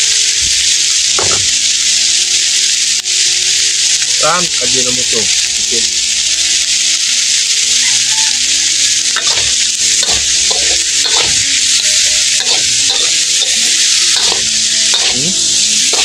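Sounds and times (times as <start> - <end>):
meat sizzling in a wok: 0.0 - 16.0
metal spatula scraping a pan: 7.7 - 16.0.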